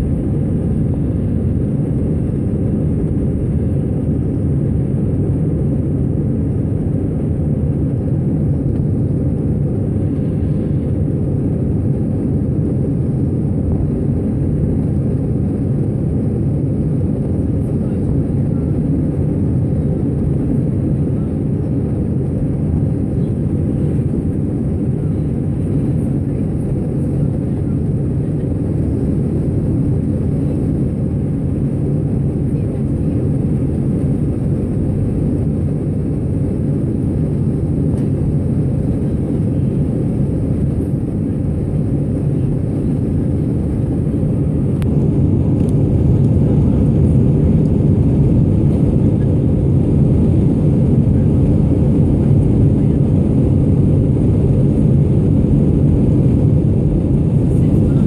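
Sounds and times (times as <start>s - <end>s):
jet engines in cabin: 0.0s - 58.0s.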